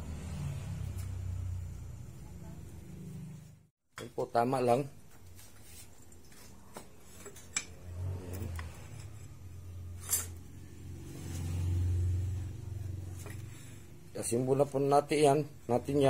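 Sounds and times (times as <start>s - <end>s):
low motor hum: 7.8s - 13.8s
metal parts clinking: 10.0s - 10.4s.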